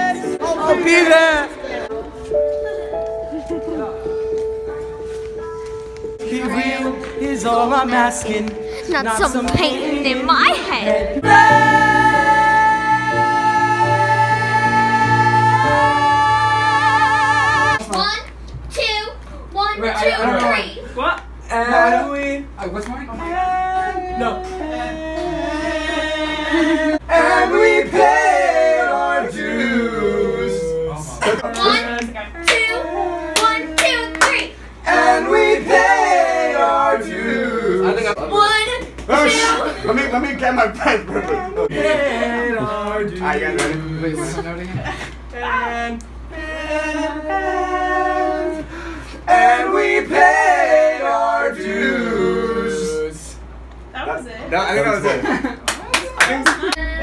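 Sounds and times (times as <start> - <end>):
young men singing a cappella: 0.0 - 1.9, 6.2 - 17.8, 21.4 - 38.2, 39.1 - 53.5.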